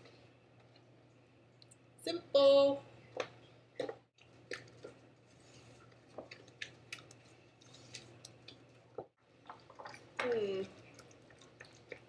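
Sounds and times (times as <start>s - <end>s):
wet squishy sounds: 3.1s - 12.0s.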